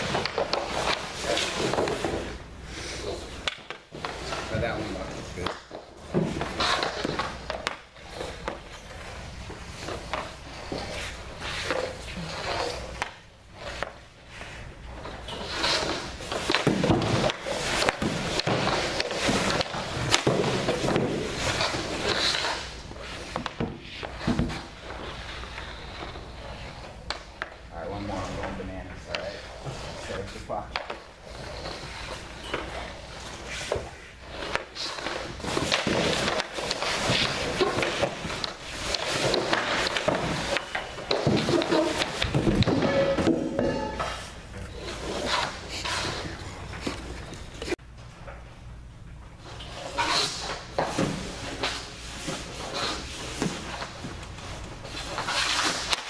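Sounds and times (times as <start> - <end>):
hockey pucks knocking: 0.0 - 4.6, 5.3 - 14.0, 15.0 - 30.0, 30.7 - 44.3
skates scraping on ice: 0.0 - 47.8, 49.4 - 56.0.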